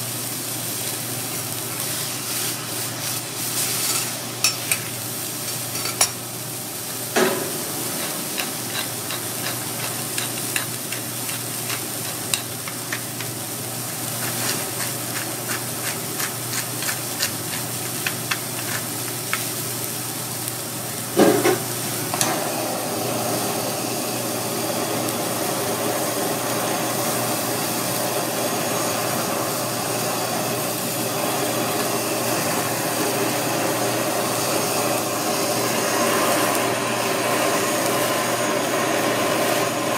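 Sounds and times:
meat sizzling on a griddle: 0:00.0 - 0:39.9
blowtorch flame rushing: 0:06.5 - 0:19.0, 0:21.2 - 0:39.9
seasoning grains ticking on steel: 0:07.4 - 0:20.6.

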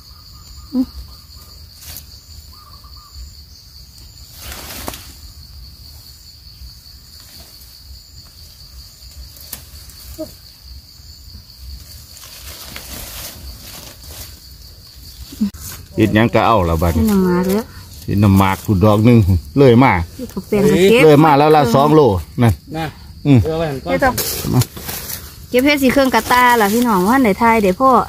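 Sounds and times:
insects droning: 0:00.0 - 0:28.0
hands rustling through leaves: 0:11.8 - 0:14.6, 0:15.2 - 0:18.8, 0:24.1 - 0:27.8.

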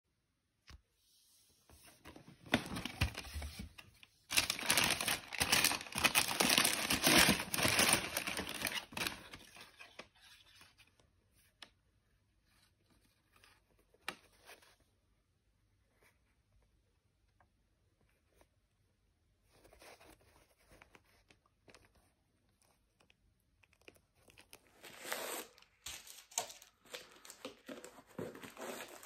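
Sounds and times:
cardboard box opening: 0:02.4 - 0:10.1
tissue paper crinkling: 0:02.4 - 0:10.4.

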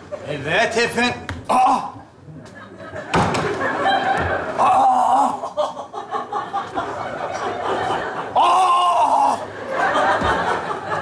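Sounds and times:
audience laughing: 0:02.2 - 0:11.0.

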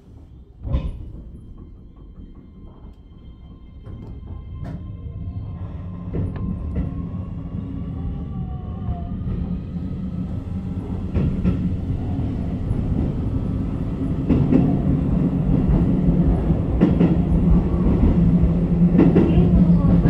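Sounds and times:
train motor hum: 0:09.0 - 0:20.0
wheels clacking over rail joints: 0:09.8 - 0:20.0.

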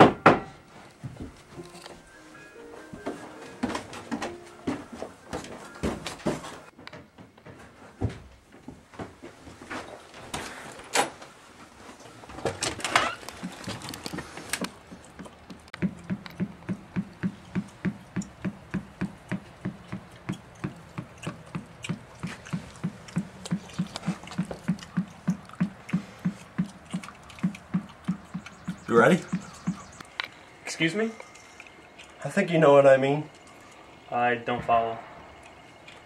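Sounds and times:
footsteps on wooden stairs: 0:01.0 - 0:01.8, 0:02.7 - 0:10.6, 0:13.3 - 0:30.1
rhythmic thumping: 0:14.9 - 0:30.0.

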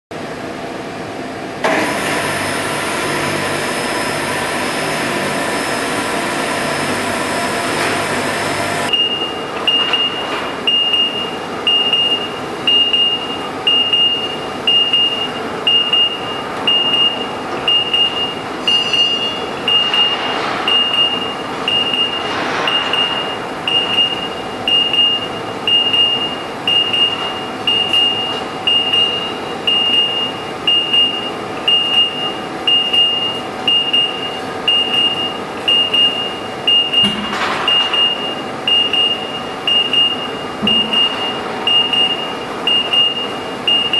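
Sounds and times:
furnace machinery hum: 0:00.1 - 0:43.9
warning beeper: 0:08.9 - 0:43.9.

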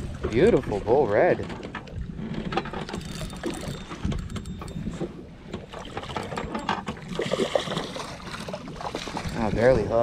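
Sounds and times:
fishing reel clicking and whirring: 0:02.8 - 0:05.0
fish splashing: 0:05.6 - 0:09.4.

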